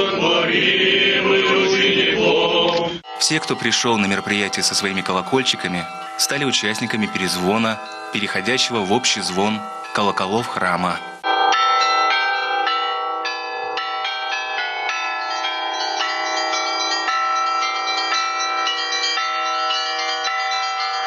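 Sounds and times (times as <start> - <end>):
church bells pealing: 3.0 - 21.0.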